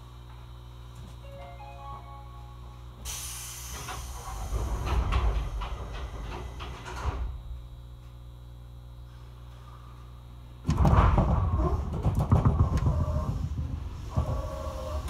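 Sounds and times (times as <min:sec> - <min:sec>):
train low hum: 0:00.0 - 0:15.0
air hiss of train doors: 0:03.0 - 0:07.3
doors rattling knocks: 0:10.7 - 0:15.0.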